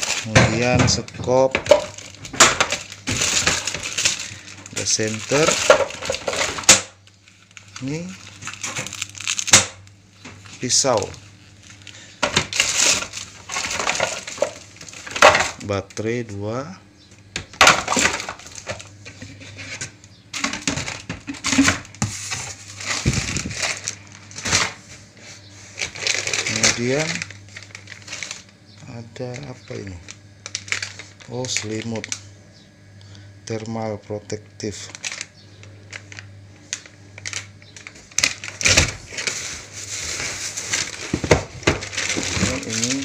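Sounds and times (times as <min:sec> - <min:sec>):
items knocking against plastic bucket: 0:00.0 - 0:07.0, 0:12.2 - 0:15.6, 0:17.4 - 0:24.8, 0:37.7 - 0:43.0
plastic packaging crinkling: 0:00.0 - 0:15.7, 0:17.6 - 0:32.3, 0:34.6 - 0:43.0
steady low hum: 0:00.0 - 0:43.0.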